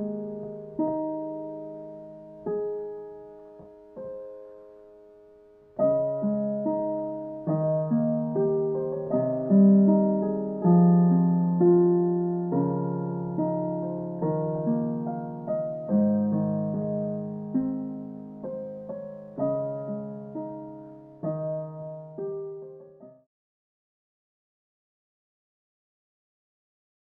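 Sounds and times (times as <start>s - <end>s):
piano chords: 0.0s - 23.2s.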